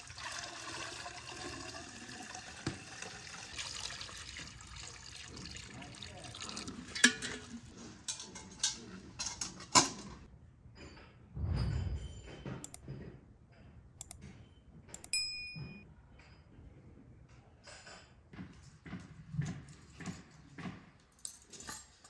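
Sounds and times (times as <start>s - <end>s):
light metal clanks and knocks: 6.9s - 14.6s
ringing metallic clink: 15.1s - 15.8s.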